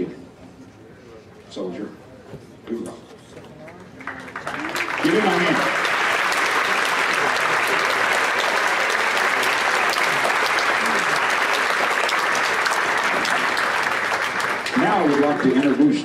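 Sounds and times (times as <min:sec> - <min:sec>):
crowd applauding: 0:03.6 - 0:16.0.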